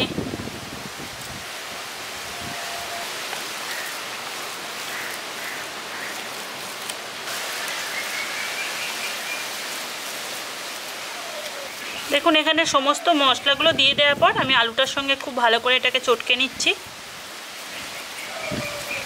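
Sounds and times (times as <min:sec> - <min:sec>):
steady hiss: 0:00.1 - 0:19.0.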